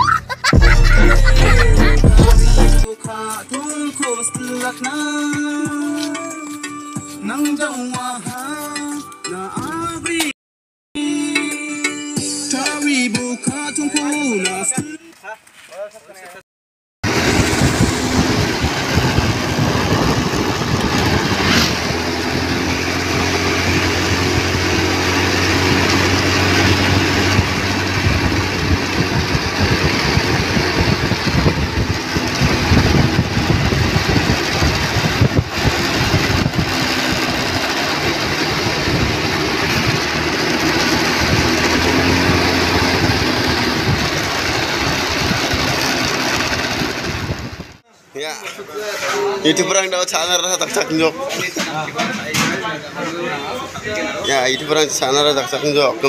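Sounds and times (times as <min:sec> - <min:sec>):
motorcycle engine running: 0:00.6 - 0:02.9, 0:17.0 - 0:47.8
wind rush over microphone: 0:17.0 - 0:22.5, 0:25.7 - 0:37.6, 0:41.0 - 0:45.9, 0:46.5 - 0:47.8.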